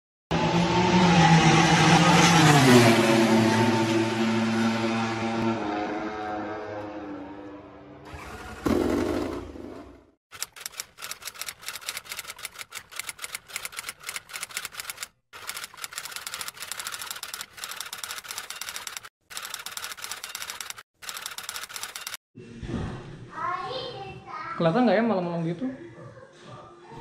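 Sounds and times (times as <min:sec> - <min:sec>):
typewriter key clatter: 0:10.4 - 0:22.2.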